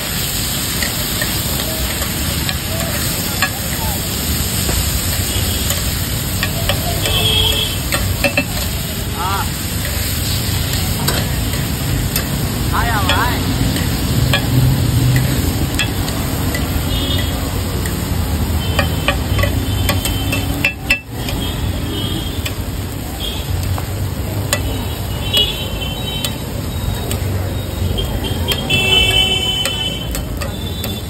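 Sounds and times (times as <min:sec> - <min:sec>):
frying sizzle: 0:00.0 - 0:31.0
street traffic: 0:00.0 - 0:31.0
metal spatulas clinking on griddle: 0:00.7 - 0:08.9, 0:09.6 - 0:18.1, 0:18.7 - 0:21.4, 0:24.5 - 0:24.8, 0:28.4 - 0:31.0.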